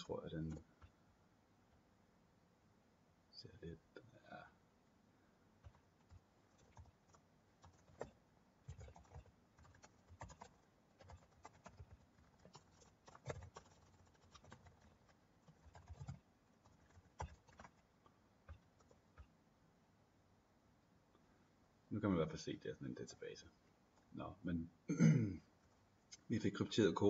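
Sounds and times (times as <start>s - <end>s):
keyboard typing clicks: 5.6s - 17.8s, 18.4s - 19.4s.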